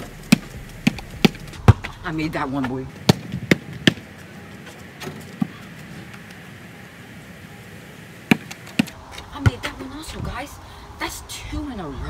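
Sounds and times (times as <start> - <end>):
basketball bouncing on pavement: 0.0 - 4.1, 8.3 - 9.9
outdoor background hum: 0.0 - 12.0.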